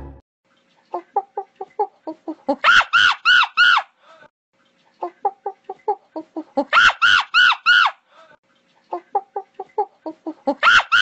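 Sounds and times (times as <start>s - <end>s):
monkey screeching: 2.6s - 3.9s, 6.7s - 8.0s, 10.6s - 11.0s.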